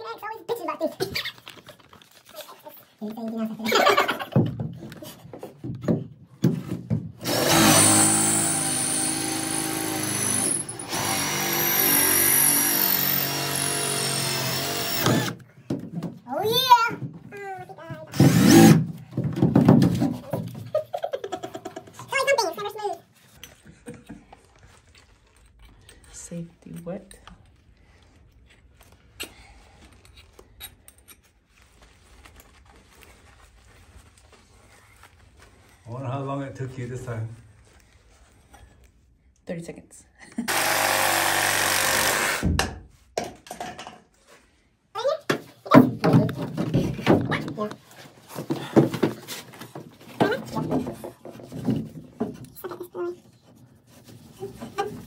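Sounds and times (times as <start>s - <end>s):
drill boring through wood: 7.2s - 15.4s, 18.1s - 18.8s, 40.5s - 42.6s
knocks: 18.2s - 20.5s.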